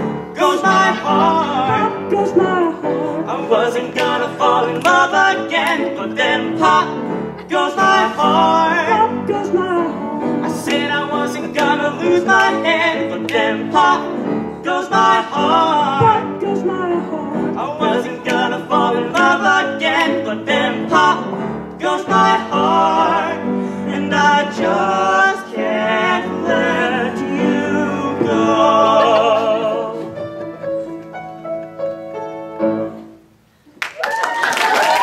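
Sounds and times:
backing track: 0.0 - 33.2
audience applause: 33.8 - 35.0.

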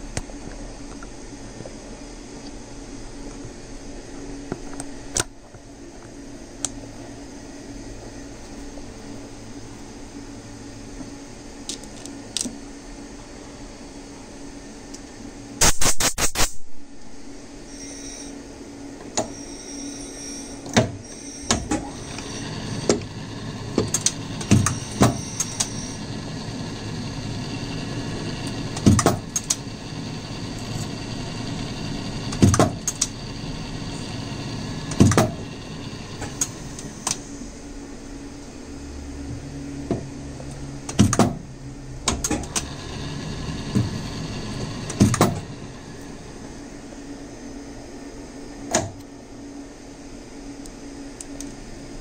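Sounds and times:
metal lathe humming: 17.6 - 39.8, 42.4 - 47.8.

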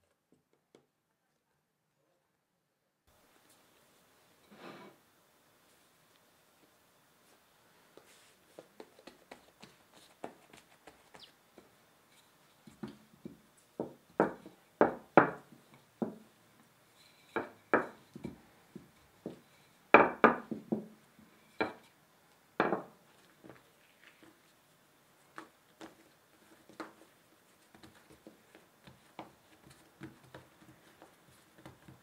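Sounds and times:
rolling pin rolling dough: 11.6 - 21.9, 25.2 - 32.0.

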